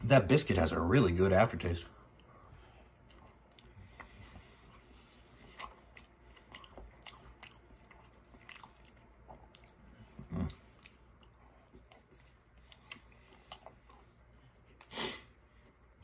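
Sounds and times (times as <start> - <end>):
person chewing: 2.9 - 15.0
low throat sound: 10.1 - 10.7.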